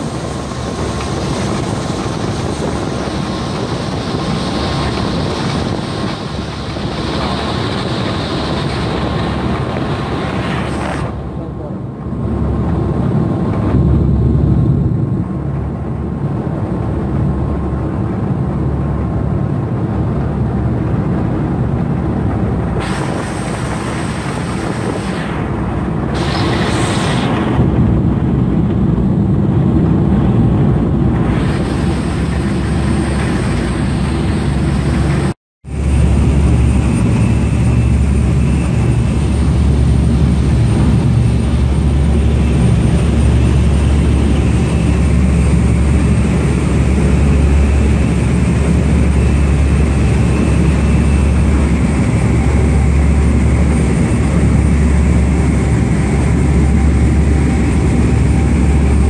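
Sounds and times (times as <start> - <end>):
boat engines droning: 0.0 - 59.0
rush of water and wind: 0.0 - 59.0.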